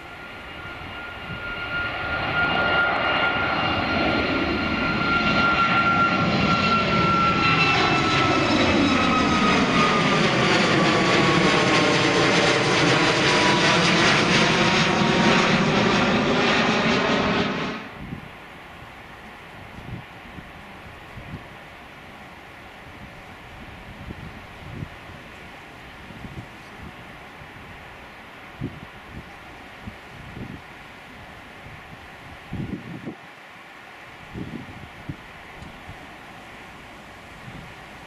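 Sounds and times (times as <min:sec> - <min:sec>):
jet engines climbing: 0:00.0 - 0:19.8.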